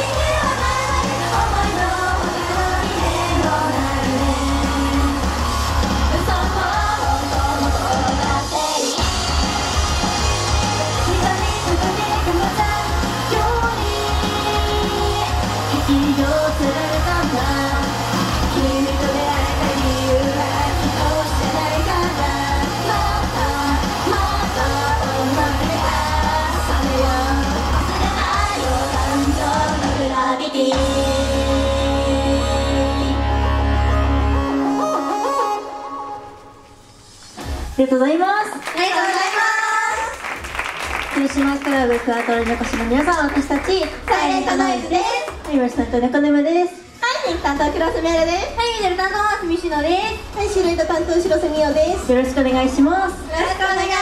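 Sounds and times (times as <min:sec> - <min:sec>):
group of women singing: 0:00.0 - 0:33.2, 0:53.3 - 0:54.0
loud pop music with heavy bass: 0:00.0 - 0:34.5, 0:42.4 - 0:45.1, 0:47.4 - 0:54.0.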